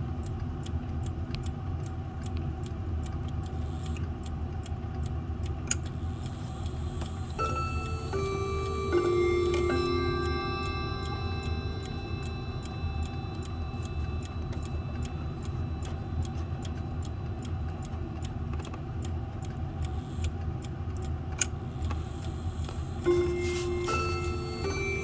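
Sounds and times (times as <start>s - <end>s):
clock ticking: 0.0s - 25.0s
sharp clock click: 0.0s - 25.0s
chime rods ringing: 7.4s - 16.6s, 23.0s - 25.0s.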